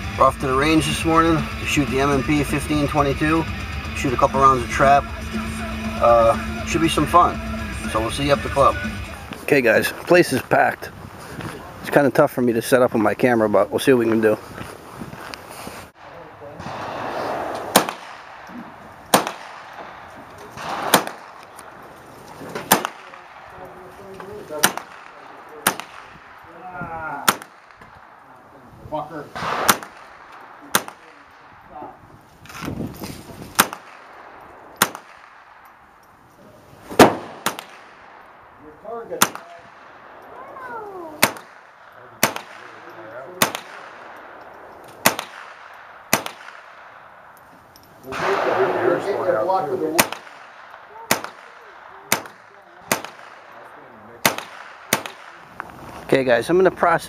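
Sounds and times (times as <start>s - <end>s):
gunshots: 16.0s - 28.4s, 29.2s - 35.8s, 36.8s - 47.4s, 48.0s - 56.0s
rifle shots: 16.0s - 28.4s, 29.2s - 32.7s, 33.4s - 35.9s, 36.9s - 47.4s, 48.1s - 56.0s.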